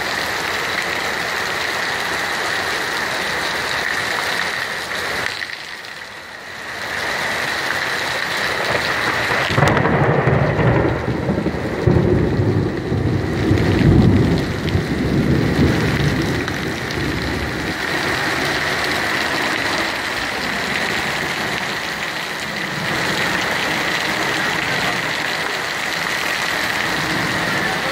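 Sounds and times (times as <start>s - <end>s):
heavy rain on a road: 0.0s - 27.9s
thunder crack and rumble: 8.6s - 27.9s.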